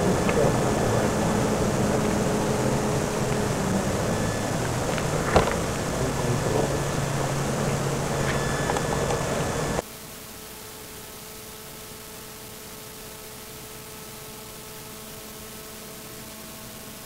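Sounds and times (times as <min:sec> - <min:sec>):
urban background rumble: 0:00.0 - 0:09.8.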